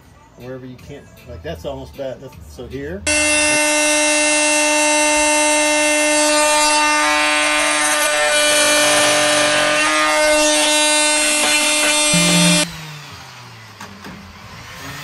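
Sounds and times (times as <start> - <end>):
power tool buzzing whine: 3.1 - 13.0.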